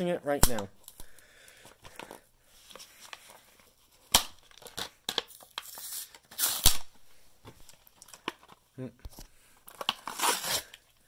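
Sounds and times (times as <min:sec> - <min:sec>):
cardboard card ripping: 0:04.1 - 0:06.8, 0:09.7 - 0:10.8.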